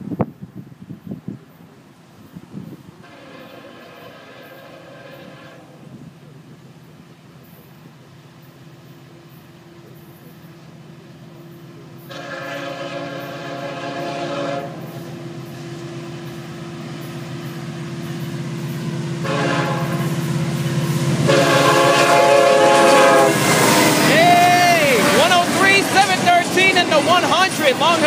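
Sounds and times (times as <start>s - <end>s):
diesel freight locomotives approaching: 0.0s - 28.0s
locomotive air horn blasts: 3.0s - 5.9s, 12.0s - 15.1s, 19.2s - 20.2s, 21.1s - 28.0s.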